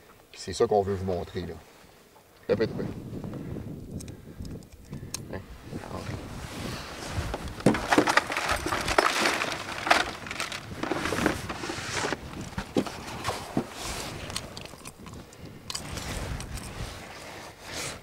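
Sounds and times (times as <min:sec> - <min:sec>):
rustling: 0:05.6 - 0:18.0.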